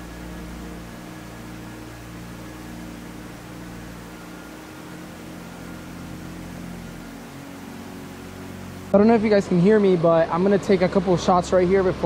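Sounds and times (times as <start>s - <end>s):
low sustained music notes: 0.0s - 12.0s
creek running over rocks: 8.9s - 12.0s.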